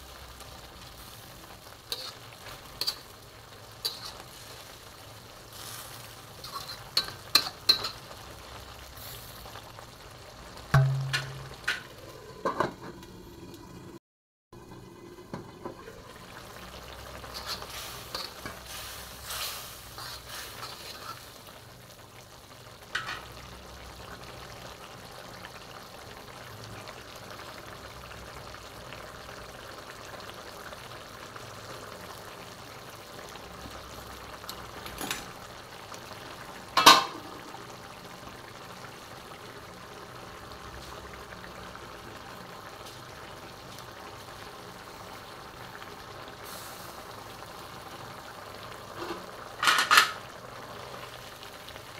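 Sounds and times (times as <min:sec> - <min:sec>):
curry bubbling and sizzling: 0:00.0 - 0:14.0, 0:14.6 - 0:51.9
utensil scraping a pan: 0:01.9 - 0:03.1, 0:03.8 - 0:04.6, 0:05.6 - 0:08.0, 0:17.2 - 0:21.4.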